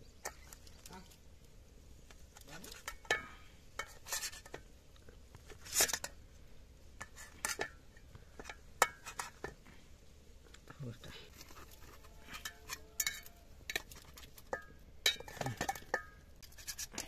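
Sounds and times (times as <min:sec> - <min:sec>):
metal spatula scraping steel plate: 0:03.8 - 0:04.6, 0:11.3 - 0:17.0.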